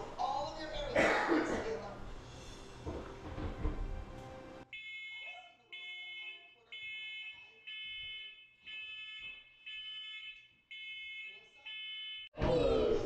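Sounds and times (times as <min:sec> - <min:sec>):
fire alarm beeping: 0:04.7 - 0:12.4.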